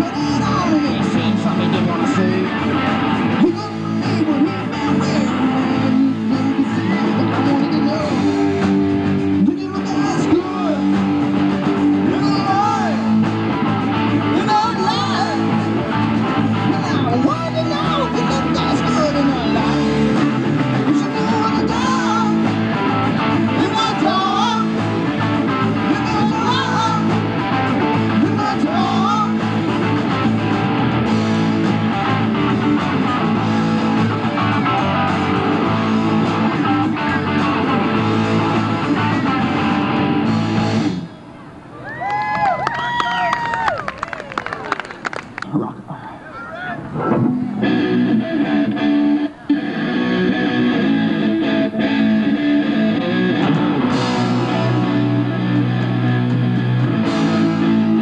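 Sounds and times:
live rock band playing: 0.0s - 41.4s, 46.8s - 58.0s
lead guitar bending notes: 0.0s - 41.6s, 46.7s - 58.0s.

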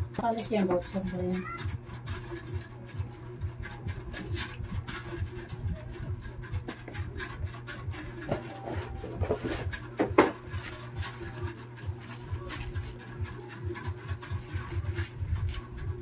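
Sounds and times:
low hum with faint pulse: 0.0s - 16.0s
cardboard box rubbing and scraping: 0.1s - 16.0s
sharp cardboard rustle: 4.1s - 16.0s.

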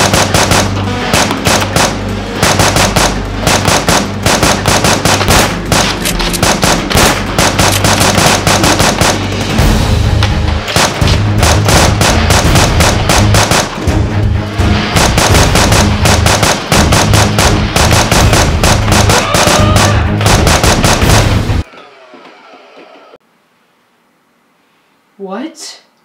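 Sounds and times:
rapid automatic gunfire: 0.0s - 9.6s, 10.7s - 14.0s, 14.9s - 21.6s
dramatic music with heavy bass: 0.0s - 21.6s.

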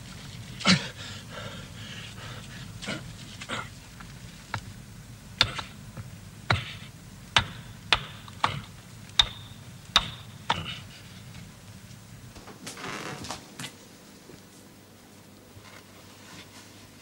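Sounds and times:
hammer striking chisel: 5.4s - 5.8s, 7.4s - 10.8s.

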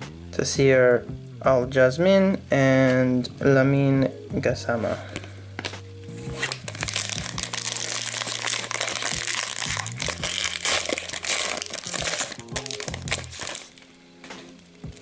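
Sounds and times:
background music: 0.0s - 15.0s
wrapper crinkling and tearing: 6.4s - 13.8s.

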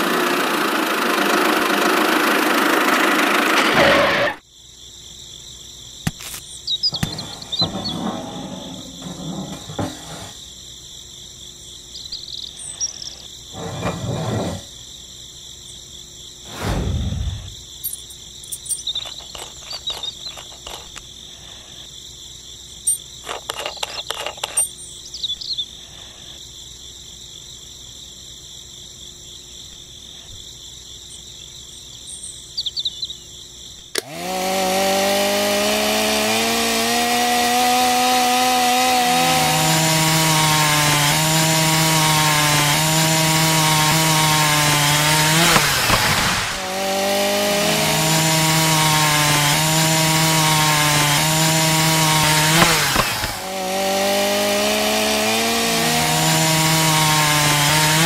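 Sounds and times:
insect chirring: 4.4s - 9.1s, 10.4s - 13.6s, 14.6s - 34.0s
small clicks of toy parts: 17.9s - 21.1s, 22.9s - 24.8s.

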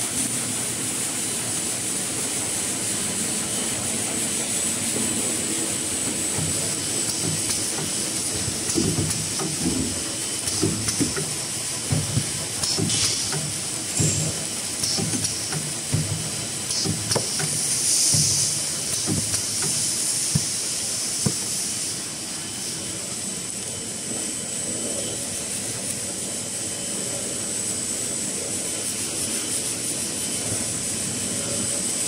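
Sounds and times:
packing machine running: 5.0s - 22.0s
sharp machine clacks: 6.2s - 20.7s.

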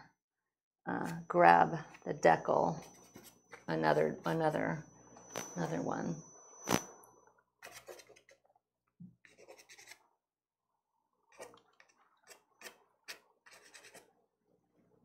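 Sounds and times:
pastel stick scratching on paper: 9.3s - 10.0s, 12.6s - 14.0s.

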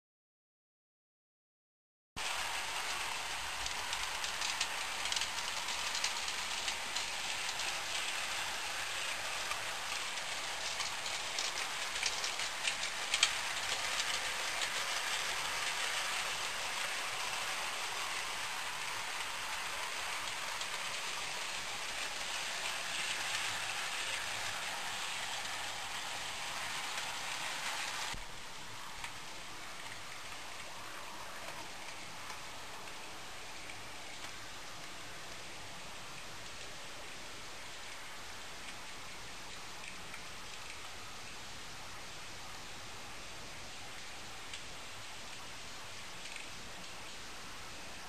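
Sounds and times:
model train wheels hissing: 2.2s - 28.2s.

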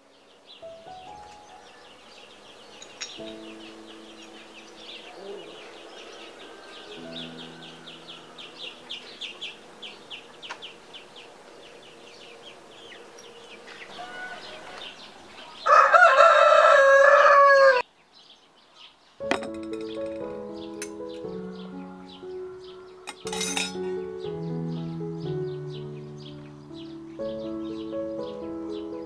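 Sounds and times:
rooster crowing: 5.3s - 8.8s, 13.8s - 17.9s.

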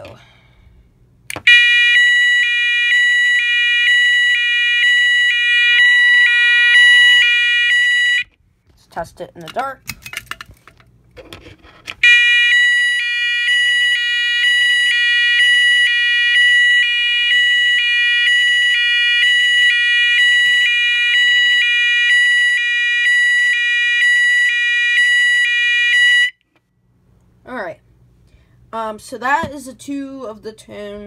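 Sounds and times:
two-pitch fire alarm tone: 1.5s - 8.3s, 12.0s - 26.4s.

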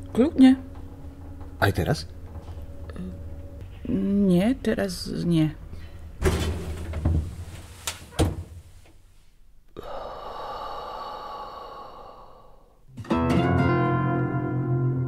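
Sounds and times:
music with sustained tones: 0.0s - 6.2s, 13.0s - 15.0s.

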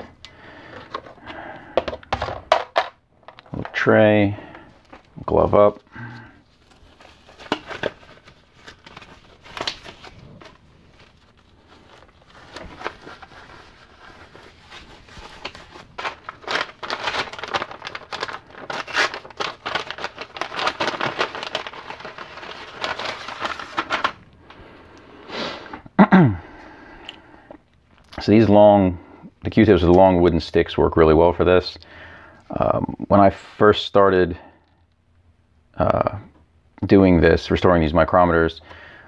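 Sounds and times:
paper packet tearing and rustling: 3.5s - 24.3s.

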